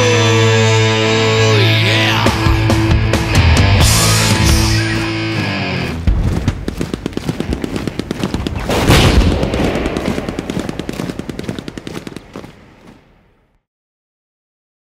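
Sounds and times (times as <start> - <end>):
rapid rattle of sharp cracks: 6.2 - 13.0.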